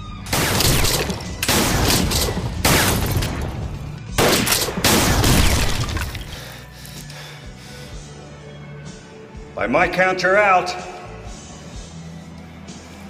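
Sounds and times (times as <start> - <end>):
rapid gunfire volleys: 0.3 - 5.9.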